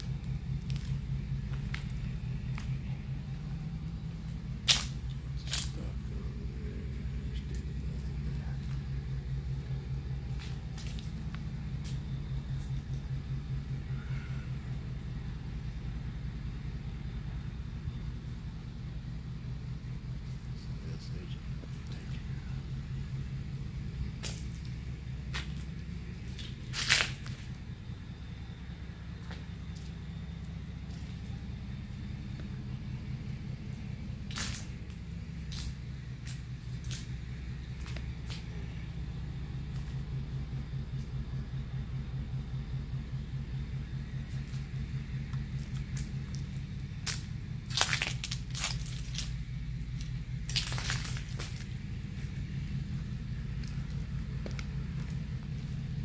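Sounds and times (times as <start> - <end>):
low pulsing hum: 0.0 - 56.0
steady low rumble: 0.0 - 56.0
dry leaves crunching and rustling: 24.2 - 27.6, 45.6 - 52.4.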